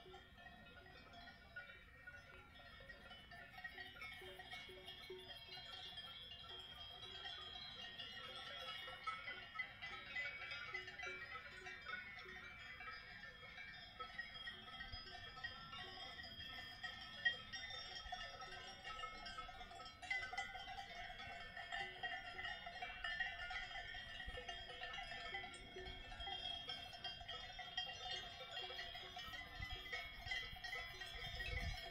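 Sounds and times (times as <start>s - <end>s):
livestock bells clanking: 0.0s - 31.9s.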